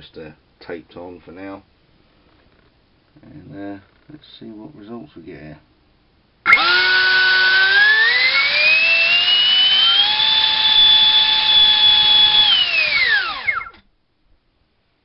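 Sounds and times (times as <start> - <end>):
electric ducted fan whine: 6.4 - 14.0.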